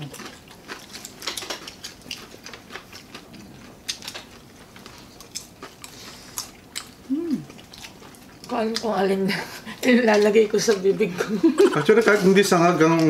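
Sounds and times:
people chewing food: 0.0 - 13.0.

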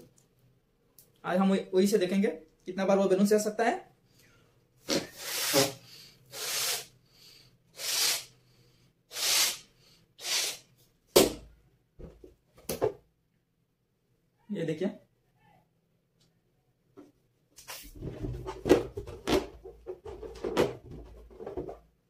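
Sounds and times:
balloon rubbing and handling: 4.8 - 6.9, 7.8 - 8.3, 9.1 - 10.7, 17.6 - 22.0
breath puffs into balloon: 4.8 - 10.7.

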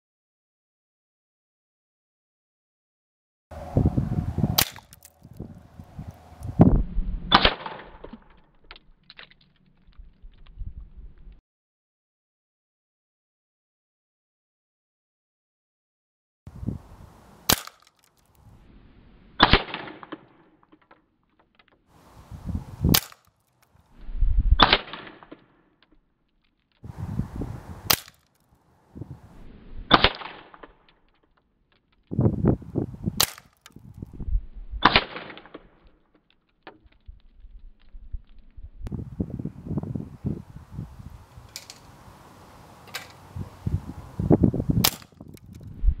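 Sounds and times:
dull crack: 4.5 - 6.7, 7.3 - 11.4, 17.5 - 18.6, 22.8 - 24.0, 24.6 - 27.0, 27.8 - 28.7, 29.9 - 32.6, 33.2 - 34.2, 34.8 - 38.7, 44.8 - 45.8
air rifle shot crack: 7.2 - 8.1, 27.8 - 28.2.

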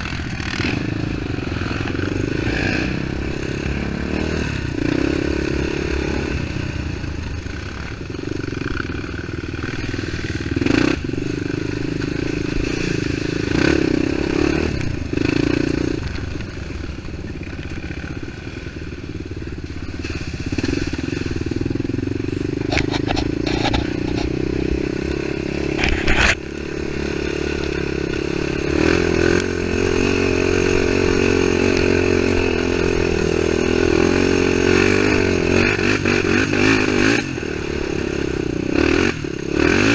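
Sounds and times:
quad bike engine revving: 0.0 - 39.9.

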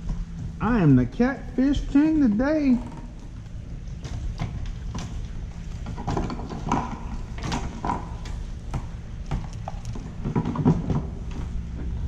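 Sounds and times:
clicks and knocks on kayak hull: 4.0 - 11.5.

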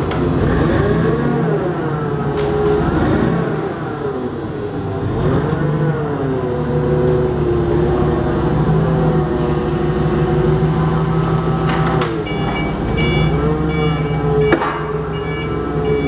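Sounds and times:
forklift engine running: 0.0 - 16.0
high reversing alarm beeps: 12.2 - 16.0.

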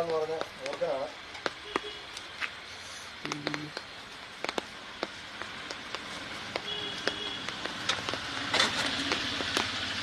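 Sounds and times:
sharp taps: 0.0 - 2.6, 3.2 - 8.2.

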